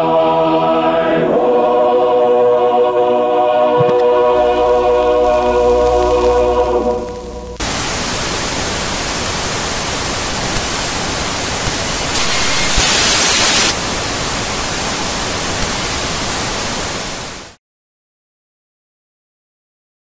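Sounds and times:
television static hiss: 5.3 - 17.6.

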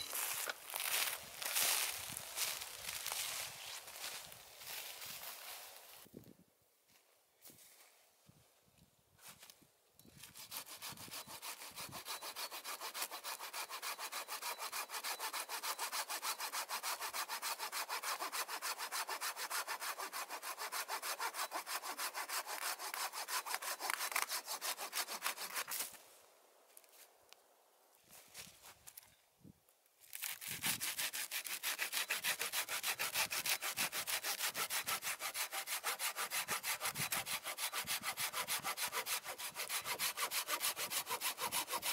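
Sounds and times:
hand saw cutting a log: 10.2 - 26.0, 30.2 - 41.9.

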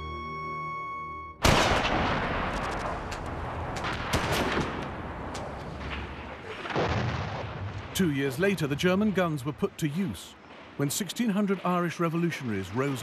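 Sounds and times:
held music chord: 0.0 - 1.4
dense gunfire: 1.4 - 8.0.

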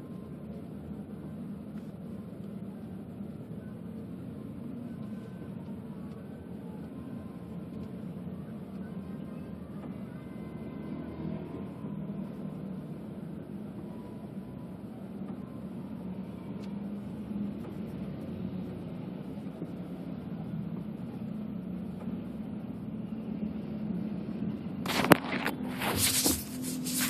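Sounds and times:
car engine and tyres drone: 0.0 - 25.9
phone being handled: 24.9 - 27.0.

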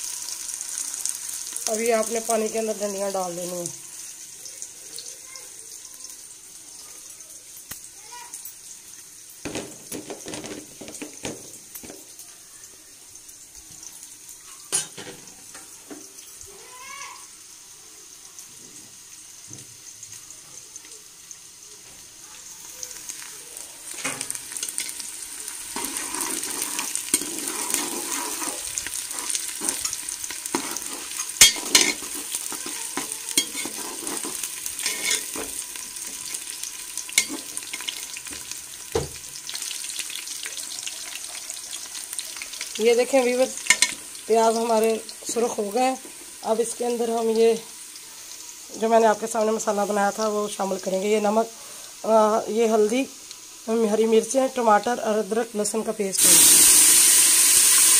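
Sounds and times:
onions sizzling in pot: 0.0 - 57.9
metal spoon scraping pot: 25.8 - 35.6.

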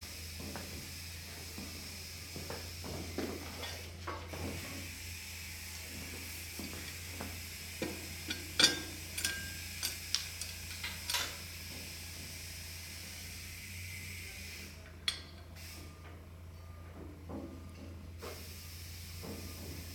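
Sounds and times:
metal parts clinking: 8.3 - 11.4.

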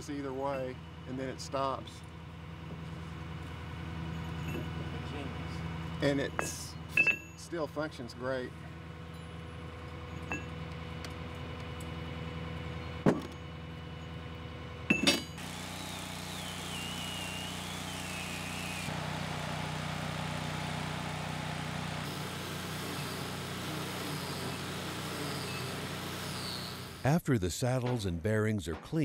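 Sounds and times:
machinery engine hum: 0.0 - 27.1
angle grinder whining: 15.4 - 27.0.

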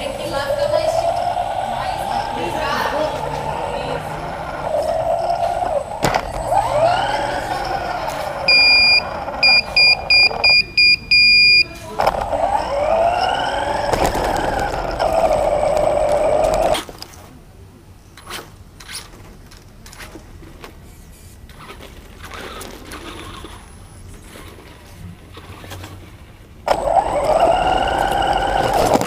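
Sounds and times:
toy car motor whining: 0.0 - 10.6, 12.0 - 16.9, 26.7 - 29.0
electronic beeping: 4.2 - 11.7.

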